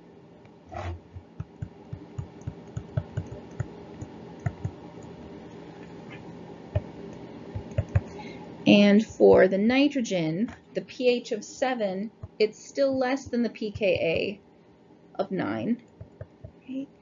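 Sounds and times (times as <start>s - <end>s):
stylus clicking on a tablet: 1.2s - 5.1s, 7.6s - 8.1s.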